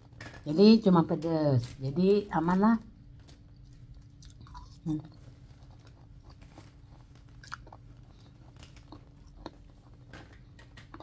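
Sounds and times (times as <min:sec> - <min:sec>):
low steady hum: 0:00.0 - 0:11.0
person chewing: 0:03.3 - 0:11.0.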